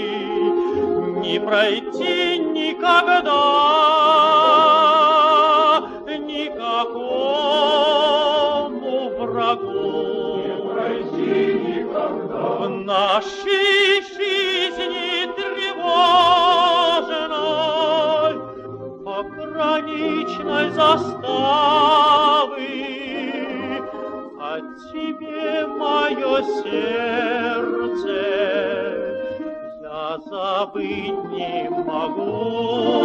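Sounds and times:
man singing with vibrato: 0.0 - 33.0
sustained accompaniment: 0.0 - 33.0.

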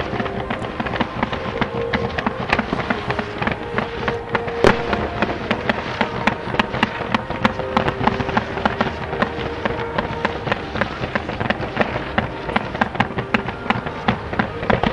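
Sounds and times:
fireworks bangs and crackles: 0.0 - 14.9.

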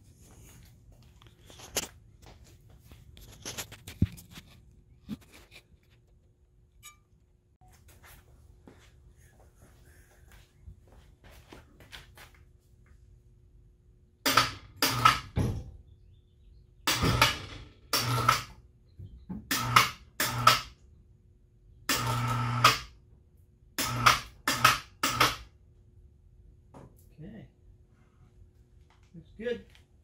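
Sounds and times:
electric lift motor humming: 16.9 - 18.5, 21.9 - 22.9.

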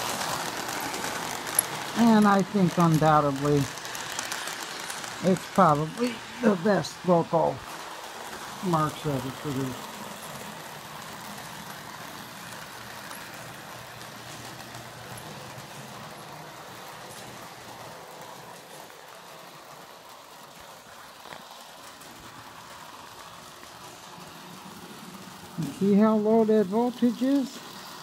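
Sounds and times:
toy train motor whirring: 0.0 - 28.0.

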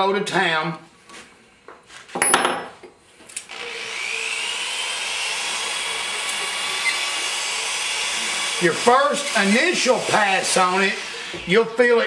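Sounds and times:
cordless drill whirring: 3.4 - 11.5.

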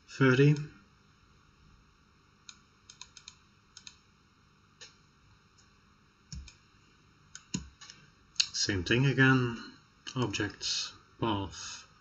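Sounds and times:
computer keyboard clicks: 2.5 - 4.0, 6.3 - 6.6, 7.4 - 8.0.

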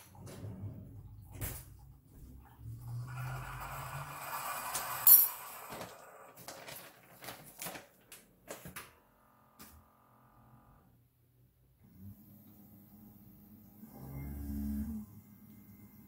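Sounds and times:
food packaging rustling: 5.7 - 8.8.

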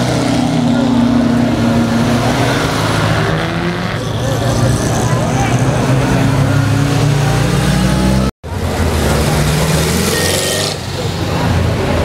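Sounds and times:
crowd chatter: 0.0 - 12.0.

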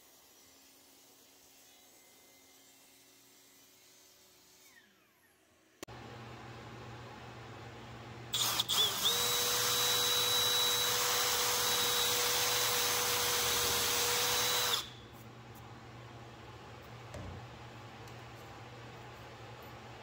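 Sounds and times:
electric drill boring: 8.3 - 15.0.

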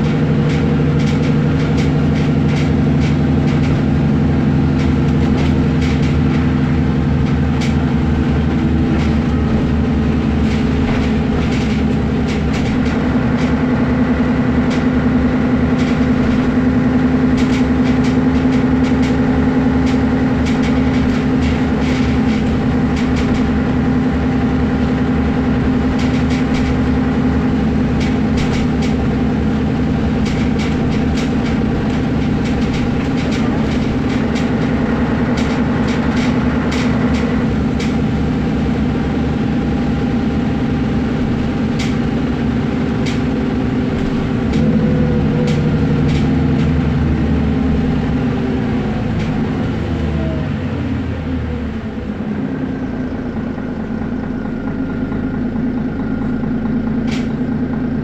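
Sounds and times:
clicks and rattles: 0.0 - 4.0, 4.7 - 13.6, 27.9 - 38.0
bus diesel engine drone: 0.0 - 58.0.

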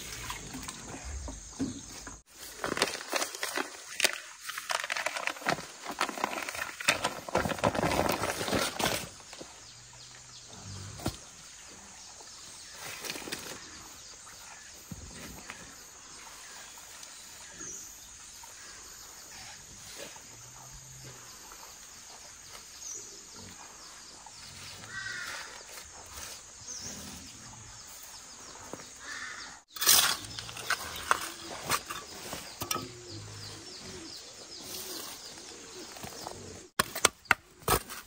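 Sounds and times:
soil crumbling and scraping: 0.0 - 11.3, 28.2 - 38.0
patting of earth: 28.1 - 38.0.

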